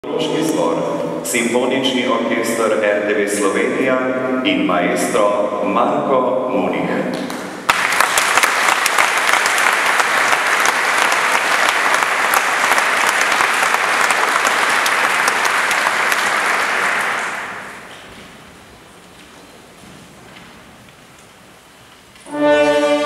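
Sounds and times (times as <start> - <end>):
audience applauding: 7.1 - 18.0.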